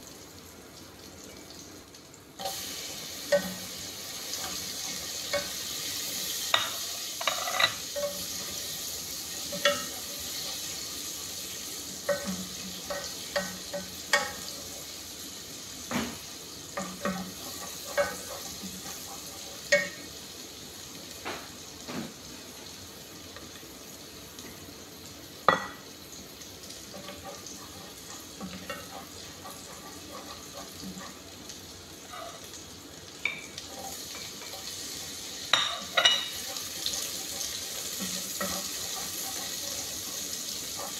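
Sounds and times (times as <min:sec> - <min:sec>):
food sizzling in a metal pot: 0:02.3 - 0:40.9
utensil scraping and clinking on pot: 0:03.3 - 0:10.8, 0:12.0 - 0:14.6, 0:16.8 - 0:20.1, 0:26.9 - 0:31.2, 0:33.3 - 0:40.9.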